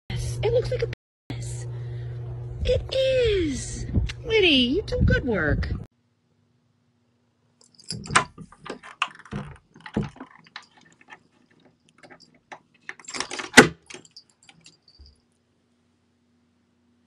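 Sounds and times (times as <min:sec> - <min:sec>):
door handle rattling and clicking: 0:07.8 - 0:14.6.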